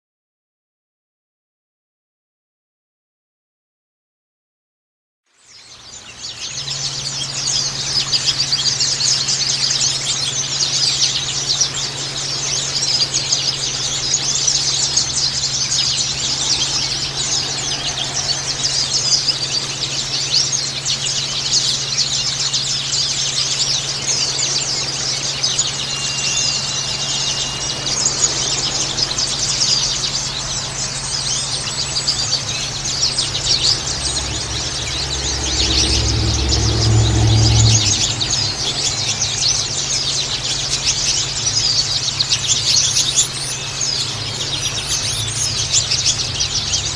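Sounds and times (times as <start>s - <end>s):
birds chirping and twittering: 5.3s - 46.9s
steady low hum: 6.7s - 46.9s.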